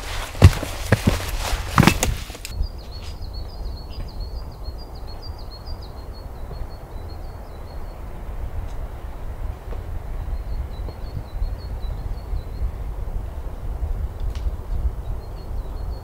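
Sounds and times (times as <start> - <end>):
gloves and boots on rock: 0.0 - 2.5
songbird singing: 0.0 - 16.0.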